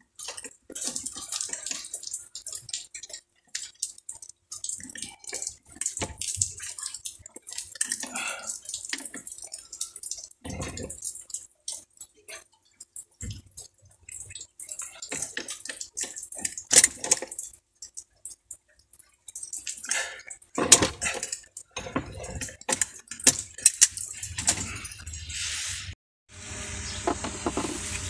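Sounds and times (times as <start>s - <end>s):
metallic clicks and scrapes: 8.9s - 18.4s, 20.3s - 26.0s.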